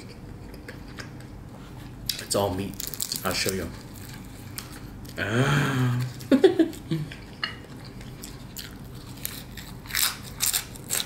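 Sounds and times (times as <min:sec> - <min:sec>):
person humming: 0:05.2 - 0:06.2
person chewing crisp food: 0:05.8 - 0:11.0.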